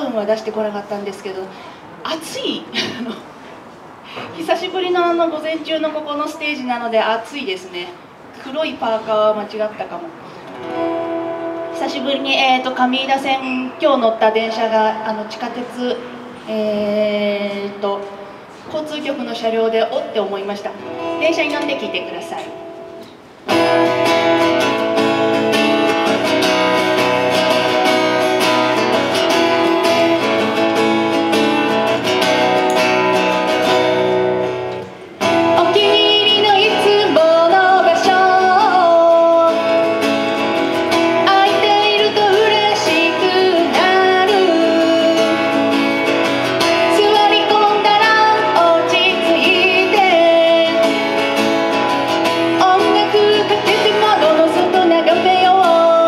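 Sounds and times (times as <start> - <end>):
acoustic guitar strumming: 10.2 - 16.4, 20.7 - 56.0
woman singing: 11.6 - 18.1, 35.2 - 40.0, 40.9 - 45.9, 46.6 - 51.2, 52.3 - 56.0.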